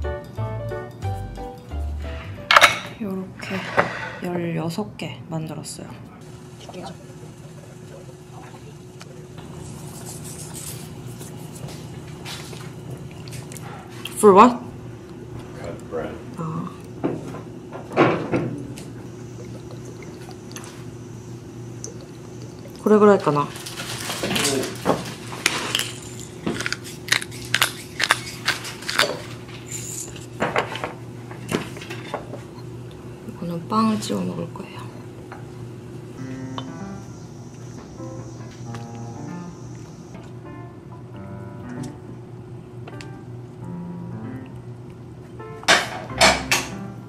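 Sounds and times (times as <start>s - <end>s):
steady low hum: 0.0s - 47.0s
water splashing and bubbling: 18.9s - 23.2s
pepper grinder crunching: 23.6s - 30.3s.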